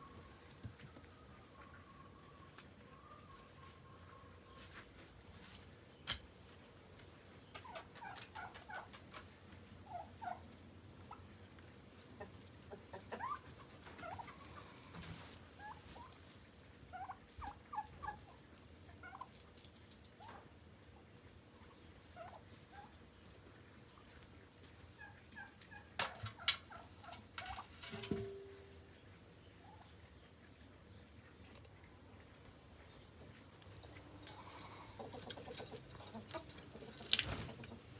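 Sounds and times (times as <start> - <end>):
turkeys calling: 0.0 - 4.8, 7.4 - 9.2, 9.8 - 19.4, 20.1 - 37.9.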